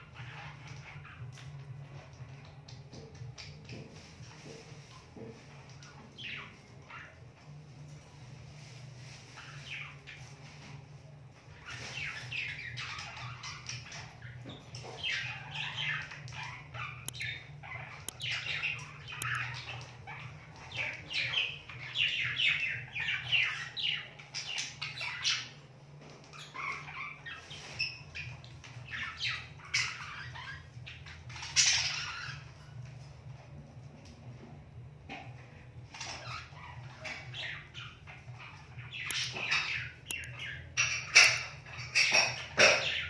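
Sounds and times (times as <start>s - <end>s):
budgerigar chirping: 14.8s - 19.8s.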